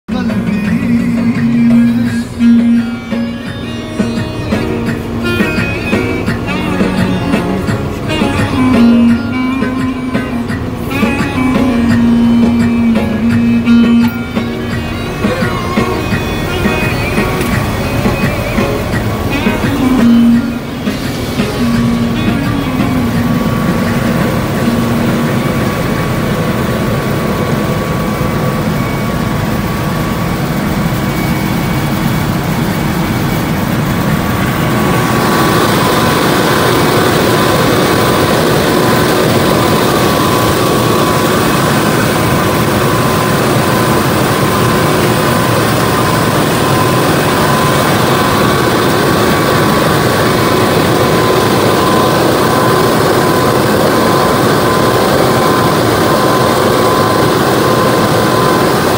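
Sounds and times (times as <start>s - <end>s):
harvester machine drone: 0.1s - 58.9s
thin steady whine: 0.1s - 58.9s.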